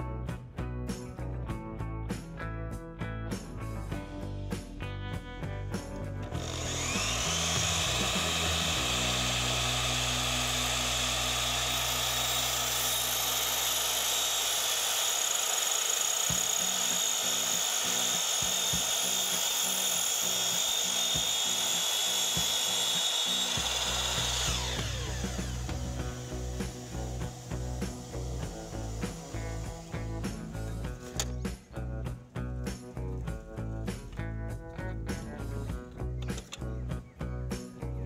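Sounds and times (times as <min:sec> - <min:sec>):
mitre saw cutting wood: 0:06.2 - 0:31.6.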